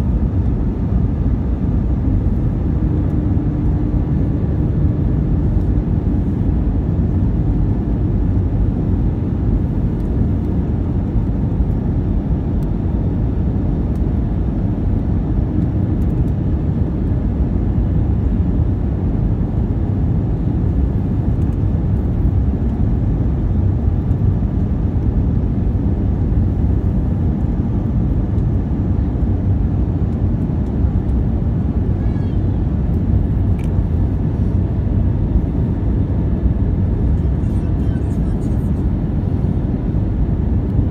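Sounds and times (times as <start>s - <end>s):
aircraft engines: 0.0s - 40.9s
airflow over fuselage: 0.0s - 40.9s.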